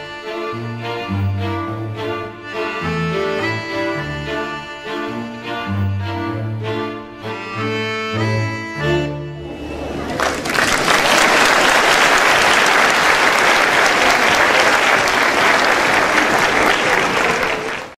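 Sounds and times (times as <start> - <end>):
audience applause: 9.4 - 18.0.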